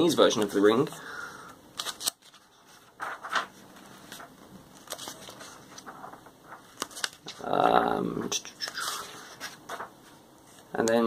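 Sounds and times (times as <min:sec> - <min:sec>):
magazine pages rustling: 0:01.8 - 0:07.5, 0:08.6 - 0:10.8.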